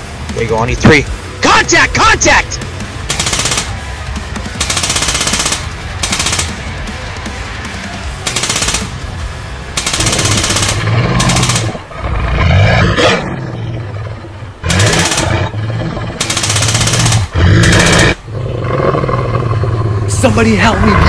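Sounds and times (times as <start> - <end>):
automatic gunfire bursts: 3.1 - 3.8, 4.6 - 6.7, 8.2 - 9.0, 9.8 - 11.8, 14.6 - 15.5, 16.2 - 18.1
large beast roaring: 10.0 - 16.2, 17.2 - 21.0.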